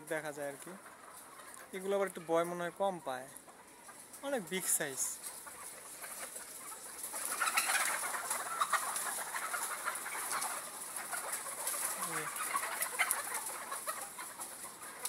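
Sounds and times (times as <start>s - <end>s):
hens clucking: 0.0s - 15.0s.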